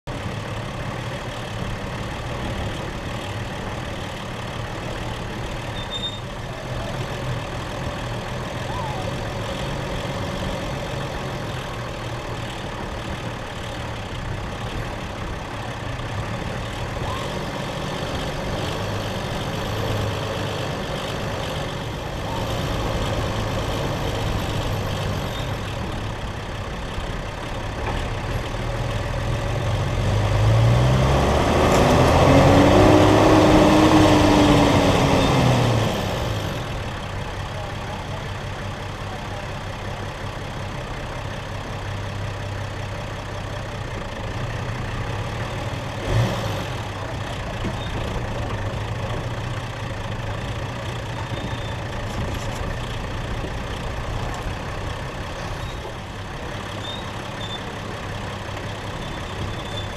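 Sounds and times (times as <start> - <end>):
road noise: 0.0 - 59.9
vehicle engine low drone: 0.0 - 59.9.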